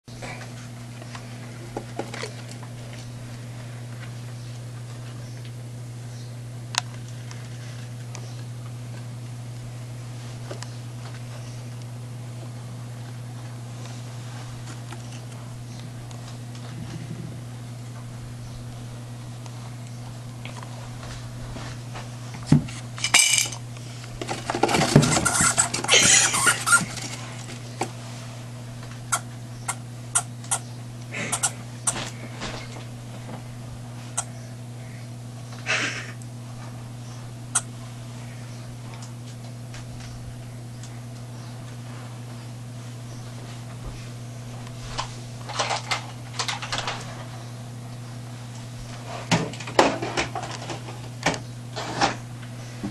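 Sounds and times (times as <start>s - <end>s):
steady low hum: 0.1s - 52.9s
hamsters scrabbling in cage: 24.2s - 27.8s
hamster squeak: 25.0s - 27.0s.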